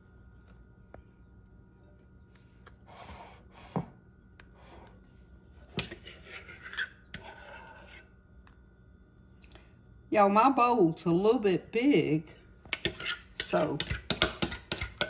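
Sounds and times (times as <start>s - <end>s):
metal spoon scraping glass bowl: 5.8s - 8.1s, 12.7s - 15.0s.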